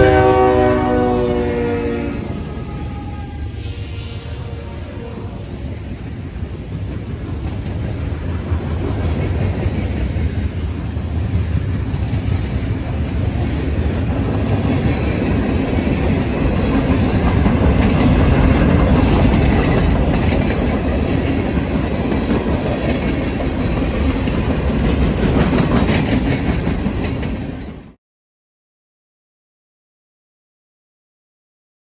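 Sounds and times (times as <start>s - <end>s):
freight train rumbling: 0.0s - 28.0s
wheels clicking over rail joints: 6.7s - 27.8s.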